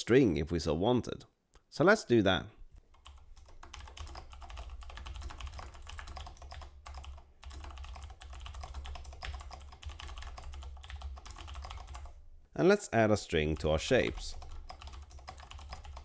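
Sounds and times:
computer keyboard typing: 2.9 - 12.2, 13.6 - 16.0.

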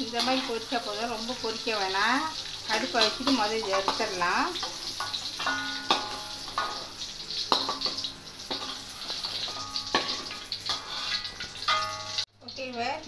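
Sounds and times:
hot oil sizzling in wok: 0.0 - 13.0
metal spoon knocking on pan: 3.0 - 6.9, 7.5 - 8.8, 9.4 - 12.2.

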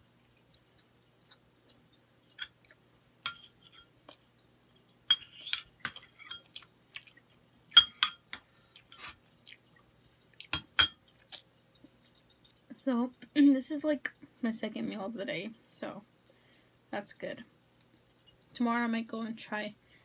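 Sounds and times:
chewing: 0.0 - 12.7
fork clinking on a plate: 3.3 - 3.9, 5.1 - 6.6.

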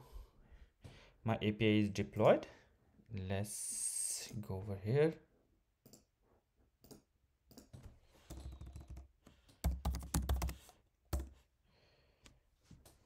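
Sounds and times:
computer keyboard typing: 8.2 - 11.4.

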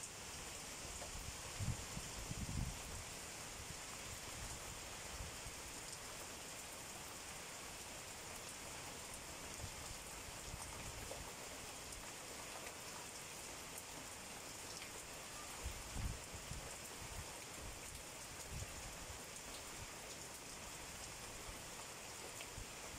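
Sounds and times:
rain on leaves: 0.0 - 22.9
wind gusts: 1.5 - 3.0.

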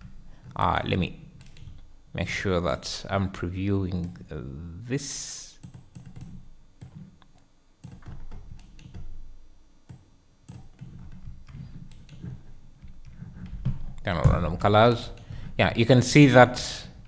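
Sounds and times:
low background hum: 0.0 - 17.0
keyboard and mouse clicking: 1.4 - 1.8, 5.6 - 9.1, 9.9 - 13.8.

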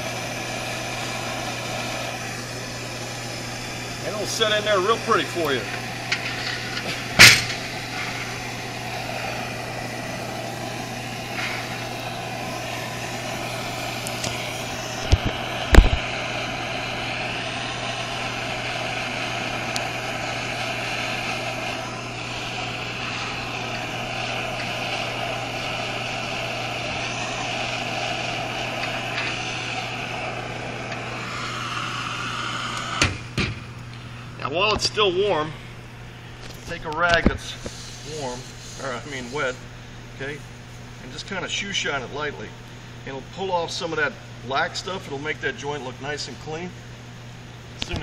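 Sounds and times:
low hum: 0.0 - 36.8
gas torch flame hissing: 0.0 - 48.0.

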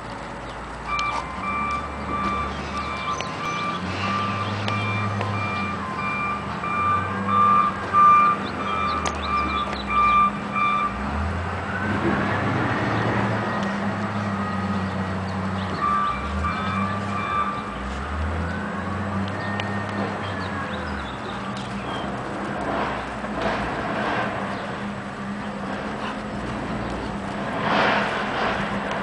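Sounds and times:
short repeated beeps: 0.9 - 11.0.

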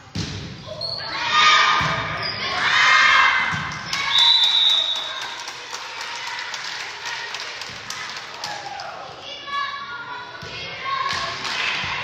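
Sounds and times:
people shouting and cheering: 0.7 - 12.0
whistle blast: 4.1 - 5.2.

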